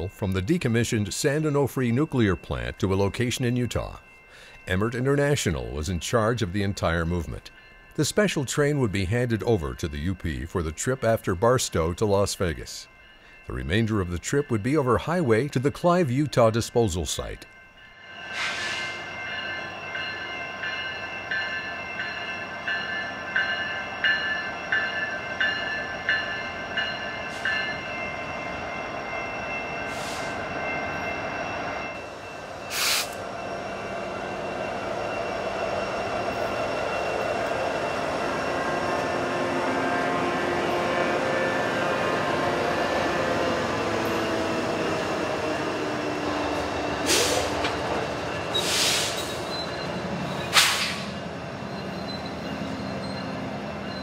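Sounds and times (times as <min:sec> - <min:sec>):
crossing bells ringing: 0:00.0 - 0:54.0
diesel locomotive engines droning: 0:00.0 - 0:54.0
train wheels clacking: 0:43.1 - 0:52.2.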